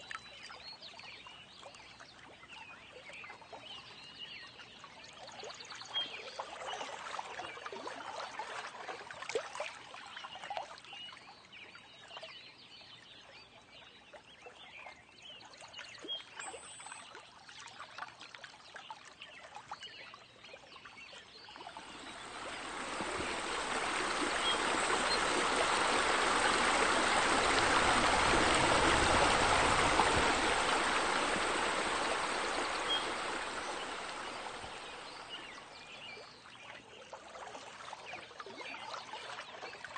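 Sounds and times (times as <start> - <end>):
water trickling and splashing: 0.0 - 12.4, 15.5 - 39.9
rush of falling water: 21.7 - 35.9.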